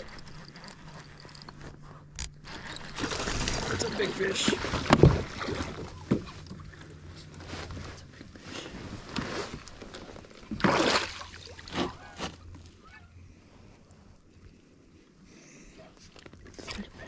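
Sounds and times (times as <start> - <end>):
water splashing and sloshing: 2.4 - 12.6.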